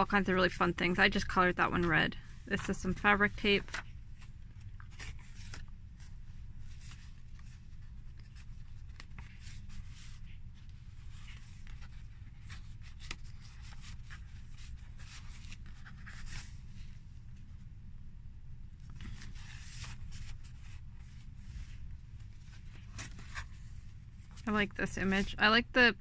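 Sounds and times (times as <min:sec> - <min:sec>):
steady low hum: 0:00.0 - 0:26.0
paper rustling and sliding: 0:02.2 - 0:17.0, 0:18.8 - 0:24.5.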